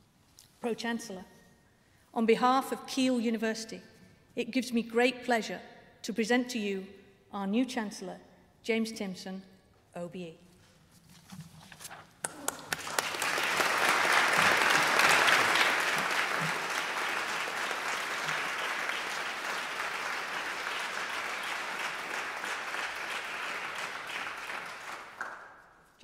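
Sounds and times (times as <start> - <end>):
audience applauding: 12.2 - 25.7.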